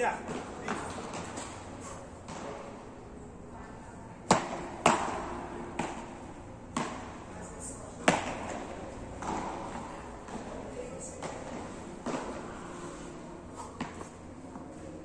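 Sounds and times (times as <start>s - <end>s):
paddles hitting ball: 0.2s - 3.0s, 4.2s - 12.7s, 13.6s - 14.7s.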